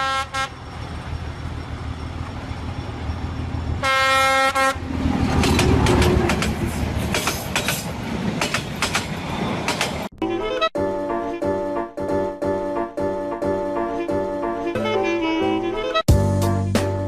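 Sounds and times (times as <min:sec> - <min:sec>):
train horn blast: 0:00.0 - 0:00.6, 0:03.8 - 0:04.9, 0:13.7 - 0:16.1
train rumbling: 0:00.0 - 0:10.2
wheels clacking over rail joints: 0:00.5 - 0:10.1.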